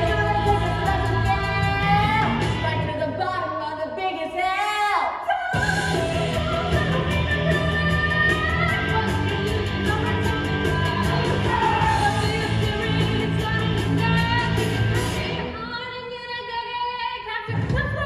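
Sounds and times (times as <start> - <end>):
steady drum beat: 0.0 - 2.6, 5.6 - 15.4
rock song with singing: 0.0 - 18.0.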